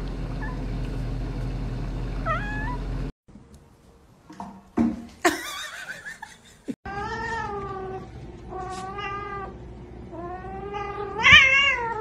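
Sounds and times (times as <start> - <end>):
cats meowing: 2.3 - 2.8, 6.9 - 12.0.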